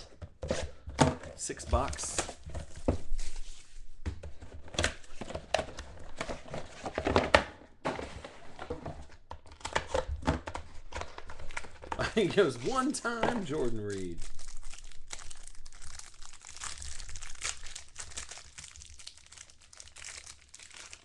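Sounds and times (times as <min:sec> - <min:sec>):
cardboard and wrappers crinkling: 0:09.5 - 0:21.0.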